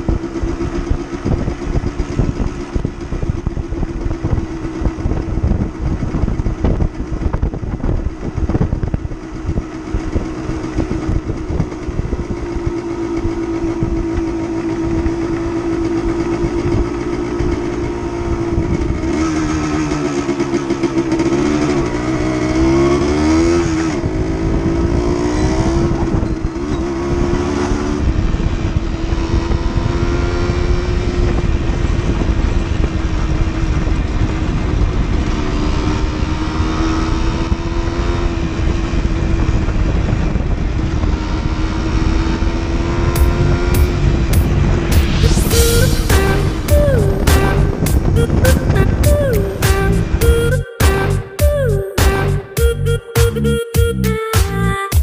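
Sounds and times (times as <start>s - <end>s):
wind buffeting microphone: 0.0s - 19.8s, 23.6s - 45.4s
motorcycle engine running: 0.0s - 55.0s.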